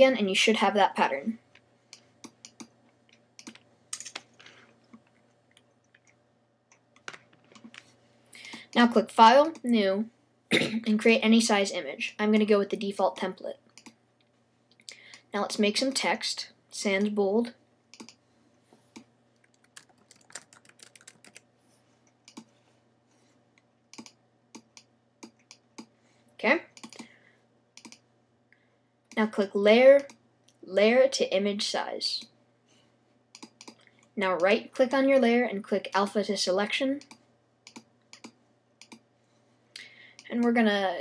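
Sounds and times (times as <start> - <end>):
faint keyboard typing: 1.5 - 9.8, 13.7 - 14.0, 17.9 - 18.2, 18.9 - 21.5, 22.1 - 22.6, 23.6 - 25.9, 26.8 - 27.1, 27.8 - 28.0, 33.3 - 34.6, 37.0 - 39.1
computer key clicks: 17.9 - 18.2, 23.9 - 25.9, 27.8 - 28.0, 37.0 - 39.0.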